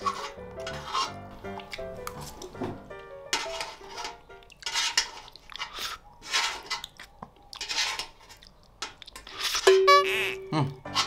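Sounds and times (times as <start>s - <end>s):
metal fork scraping metal tray: 0.0s - 1.2s, 3.3s - 6.9s, 7.6s - 8.4s
mouth sounds of eating: 10.5s - 10.9s.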